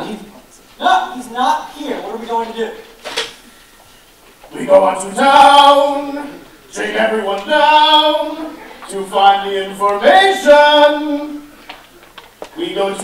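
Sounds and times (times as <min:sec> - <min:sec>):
man singing unaccompanied: 0:04.5 - 0:11.5, 0:12.5 - 0:13.0.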